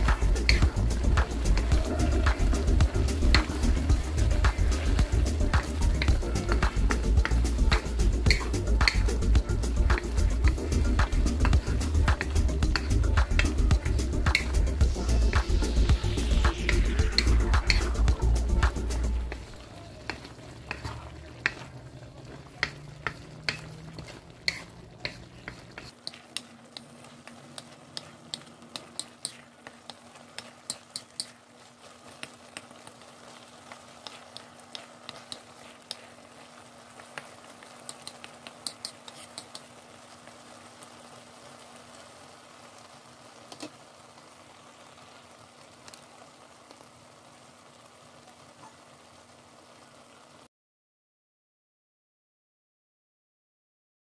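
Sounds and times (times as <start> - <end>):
wooden spatula scraping a wok: 0.0 - 41.2
sauce sizzling: 0.0 - 50.5.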